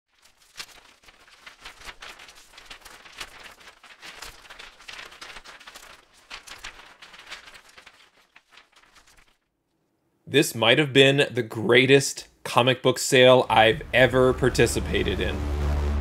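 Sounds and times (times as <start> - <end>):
sharp noisy hits: 13.7 - 16.0.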